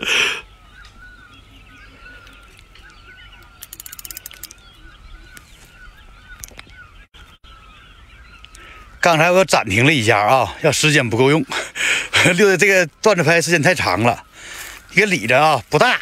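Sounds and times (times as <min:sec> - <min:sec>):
faint bird calls: 0:00.0 - 0:09.2, 0:11.3 - 0:16.0
fishing reel clicking: 0:03.5 - 0:04.6.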